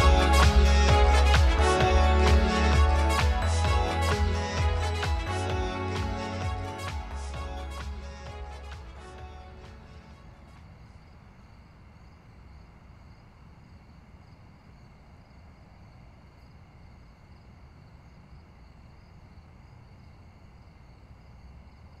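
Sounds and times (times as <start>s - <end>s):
crickets chirping: 9.0s - 22.0s.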